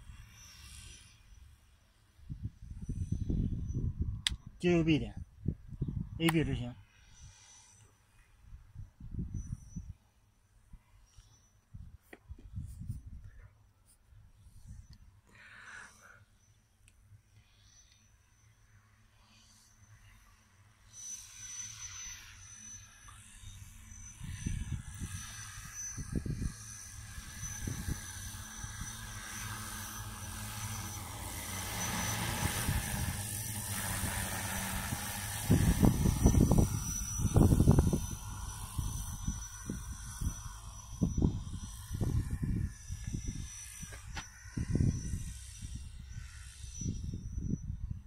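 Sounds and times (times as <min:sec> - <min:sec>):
wind buffeting microphone: 0:02.2 - 0:04.6, 0:05.2 - 0:06.2, 0:08.6 - 0:10.0, 0:24.1 - 0:48.0
drone propellers buzzing: 0:19.1 - 0:48.0.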